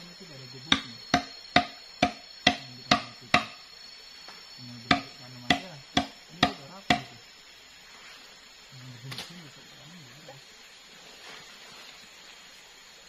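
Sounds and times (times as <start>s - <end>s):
knife chopping palm fronds: 0.7s - 3.5s, 4.9s - 7.1s.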